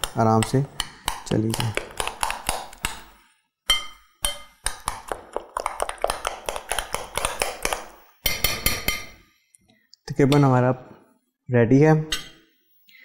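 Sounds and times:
utensil beating batter in glass bowl: 0.0 - 9.1.

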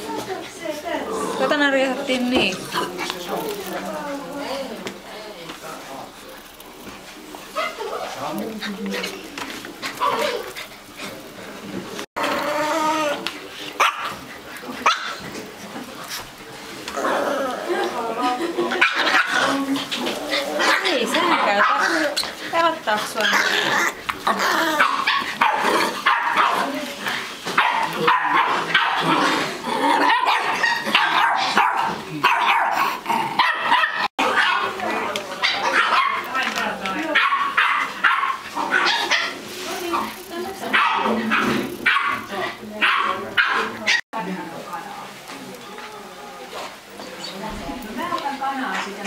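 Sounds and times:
puppies barking: 7.4 - 8.3, 12.2 - 15.4, 18.6 - 44.1.

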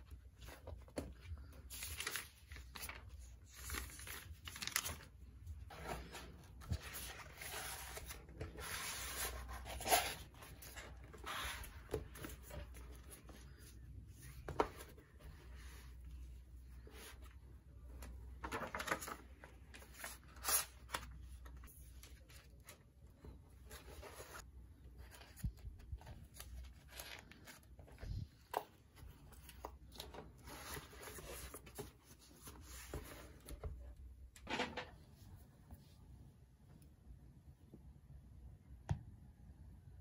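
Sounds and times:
paper pages rustling: 0.1 - 15.9, 18.0 - 23.0, 23.7 - 33.7.

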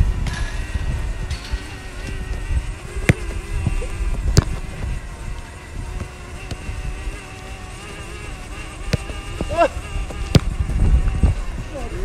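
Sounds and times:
steady hum: 0.0 - 12.0
football being kicked: 4.3 - 4.6, 8.9 - 10.6.

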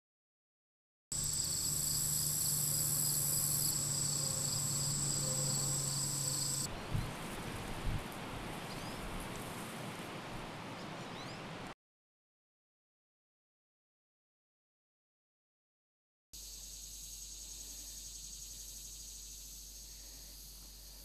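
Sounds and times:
outdoor hiss: 1.1 - 11.8, 16.4 - 21.0
insects trilling: 1.2 - 6.7, 16.4 - 21.0
low hum: 1.2 - 6.9.

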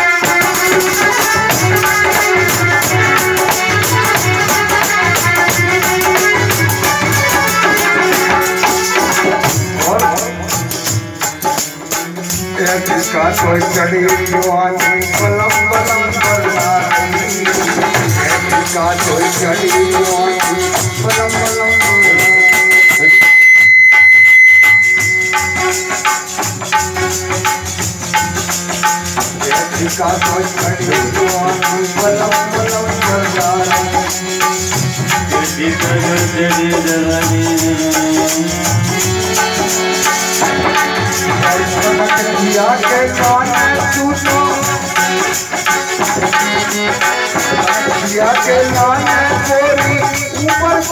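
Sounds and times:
person singing: 0.0 - 10.8, 12.1 - 23.2, 29.4 - 45.5, 46.2 - 50.9
hand percussion beat: 0.0 - 50.9
harmonium: 0.0 - 50.9
high steady whistle: 20.4 - 26.6.

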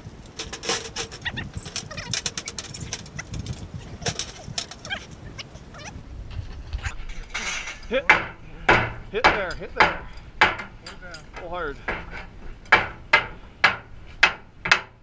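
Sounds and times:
light metal clinks: 0.3 - 5.7
sledgehammer striking steel: 7.9 - 15.0.

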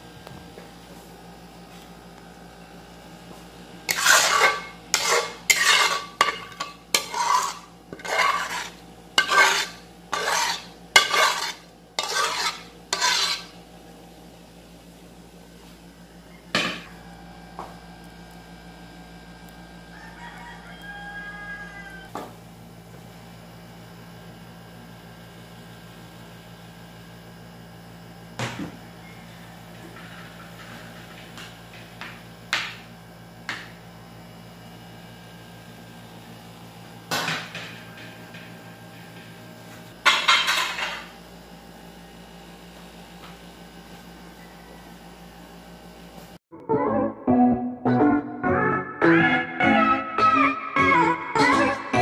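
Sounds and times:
utensil scraping a pan: 3.9 - 13.6.

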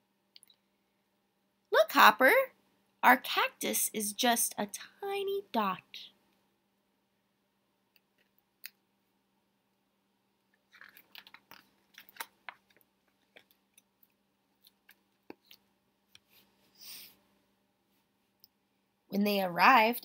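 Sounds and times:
faint clicks of handling book: 10.5 - 16.5
book page turning: 10.7 - 13.6.

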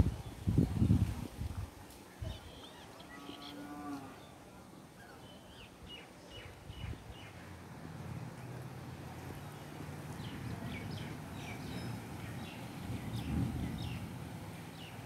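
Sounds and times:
small birds chirping: 2.2 - 4.4, 9.0 - 15.0.

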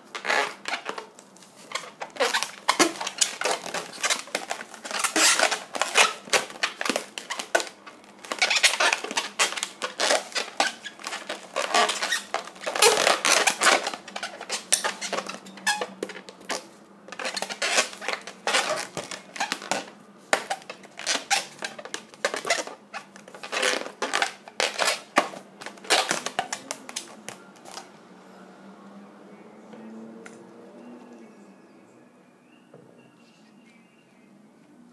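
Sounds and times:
balloon squeaking and rubbing: 0.0 - 27.8.

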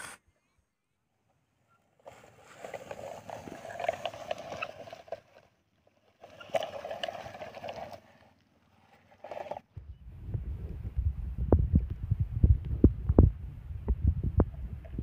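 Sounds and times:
toy wheels rolling over grass: 1.9 - 9.7.

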